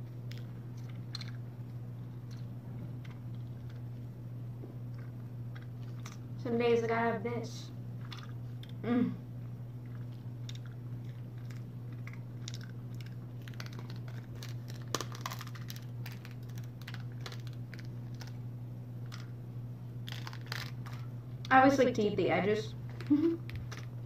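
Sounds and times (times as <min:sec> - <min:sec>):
chewing sounds: 0:00.0 - 0:06.4, 0:07.9 - 0:08.8, 0:09.4 - 0:19.3, 0:20.0 - 0:21.5, 0:22.8 - 0:24.0
steady low hum: 0:00.0 - 0:24.0
small clicks and crinkles: 0:00.1 - 0:04.1, 0:09.8 - 0:18.4, 0:19.0 - 0:19.4, 0:20.0 - 0:21.5, 0:22.9 - 0:23.9.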